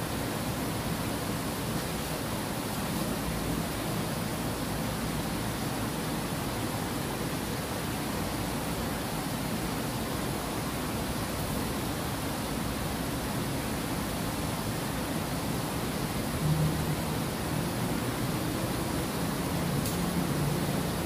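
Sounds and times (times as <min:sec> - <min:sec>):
water rushing over weir: 0:00.0 - 0:21.0.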